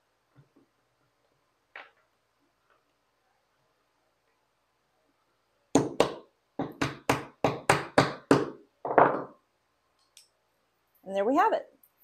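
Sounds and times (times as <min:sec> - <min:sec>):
hammer tapping wood: 0:05.8 - 0:09.3.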